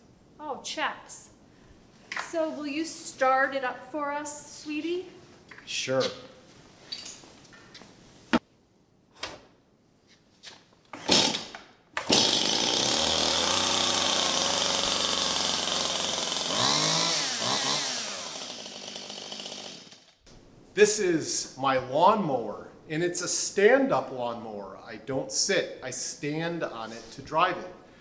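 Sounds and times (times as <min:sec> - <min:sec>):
chainsaw starter pulls: 0:11.0 - 0:20.2
chainsaw engine running: 0:11.1 - 0:11.4, 0:12.0 - 0:20.2.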